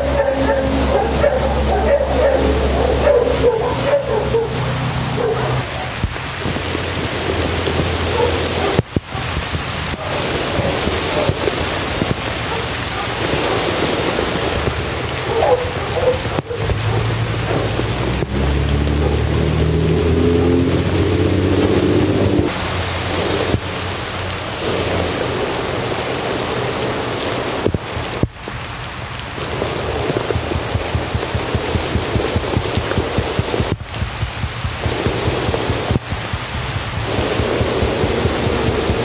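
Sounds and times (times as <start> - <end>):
dog barking: 0.0 - 6.0, 8.1 - 11.4, 12.4 - 13.9, 15.2 - 17.2
rain on wet paving: 0.0 - 39.0.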